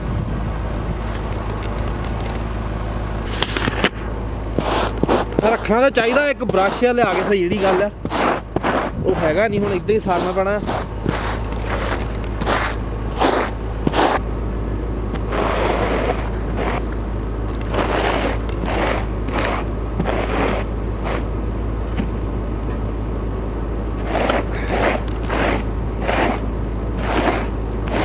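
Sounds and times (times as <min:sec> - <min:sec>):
engine idling: 0:00.0 - 0:28.0
snow scraped off windshield: 0:03.3 - 0:14.2, 0:15.2 - 0:17.0, 0:17.7 - 0:21.3, 0:24.0 - 0:28.0.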